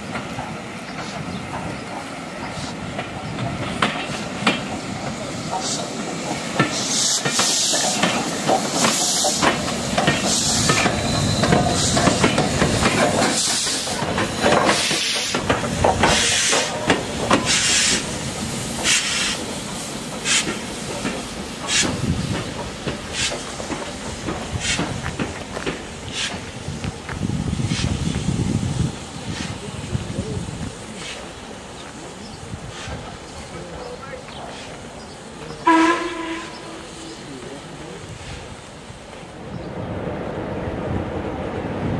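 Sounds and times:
steam locomotive beats hissing: 0:00.0 - 0:39.3
wheels rumbling on rail: 0:00.0 - 0:41.9.

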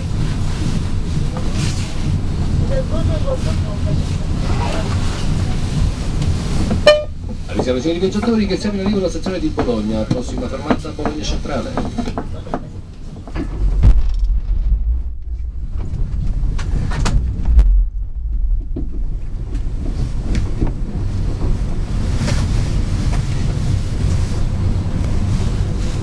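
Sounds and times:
heavy train bumps: 0:00.0 - 0:26.0
train running gear rumble: 0:00.0 - 0:26.0
wheels clicking over rail joints: 0:06.1 - 0:13.8.

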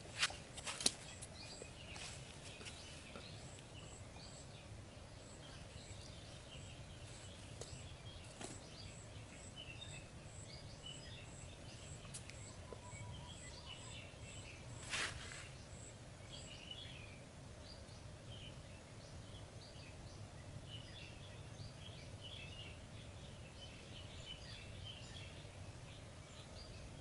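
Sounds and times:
brief rustle: 0:00.0 - 0:01.3, 0:14.8 - 0:15.6
birds chirping: 0:00.0 - 0:27.0.

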